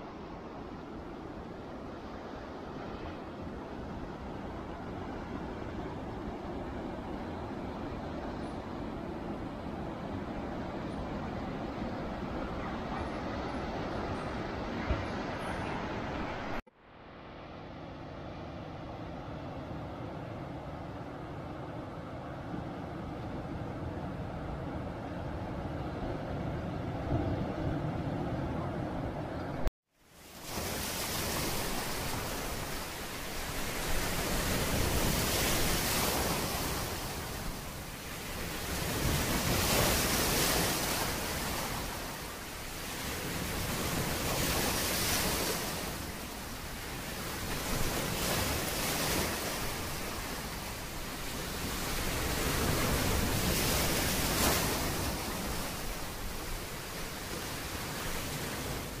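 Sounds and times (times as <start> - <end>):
ocean surf breaking: 22.8 - 59.0.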